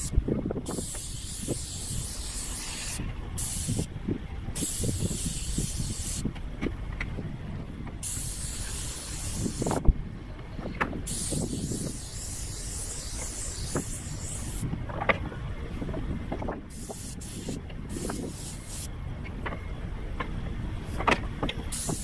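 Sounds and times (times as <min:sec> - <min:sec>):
low steady rumble: 0:00.0 - 0:22.0
paint sprayer gun hissing: 0:00.7 - 0:03.9, 0:11.1 - 0:14.6.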